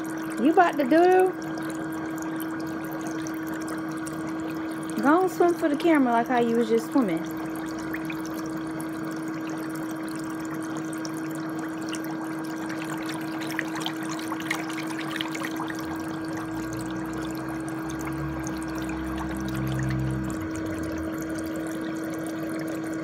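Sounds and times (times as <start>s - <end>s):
bubble jets churning in water: 0.0s - 23.0s
motor hum: 0.0s - 23.0s.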